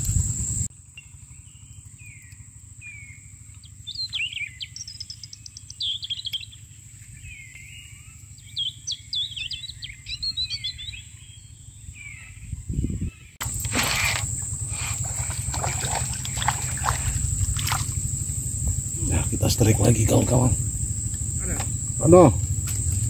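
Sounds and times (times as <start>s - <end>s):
birds singing: 0.0s - 23.0s
insect drone: 0.0s - 23.0s
low rumble: 12.6s - 23.0s
rapid ticks: 13.4s - 23.0s.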